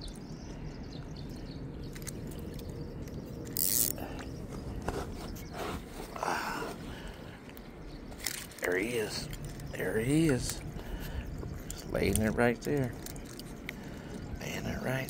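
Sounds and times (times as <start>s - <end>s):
steady low rumble: 0.0s - 15.0s
scraping and rustling handling noise: 3.2s - 14.2s.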